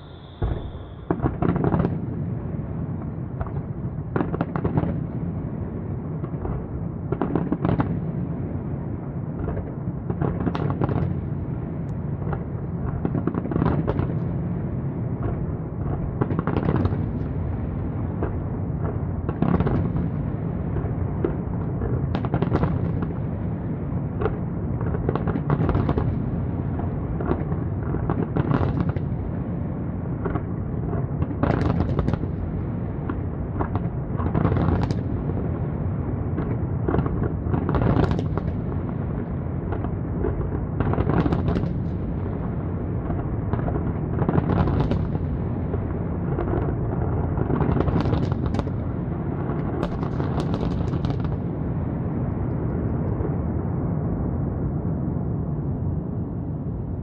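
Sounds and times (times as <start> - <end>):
firework crackling bursts: 0.0 - 2.0
firework shells booming: 0.0 - 5.0.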